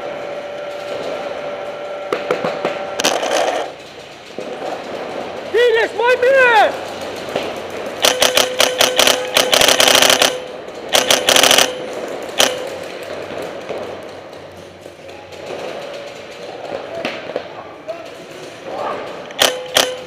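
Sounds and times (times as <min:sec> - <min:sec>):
paintball marker firing: 0:07.0 - 0:13.9, 0:19.3 - 0:20.0.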